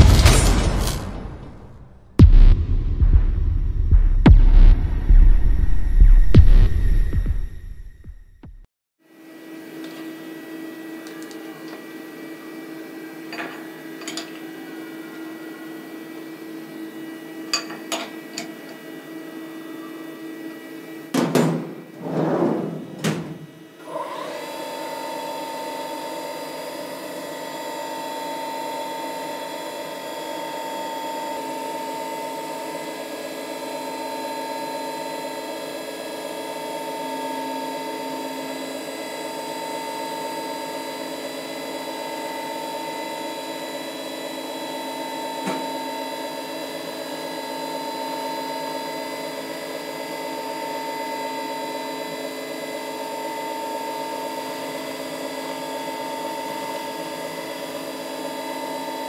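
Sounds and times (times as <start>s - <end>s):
milling machine spindle whine: 22.9s - 59.0s.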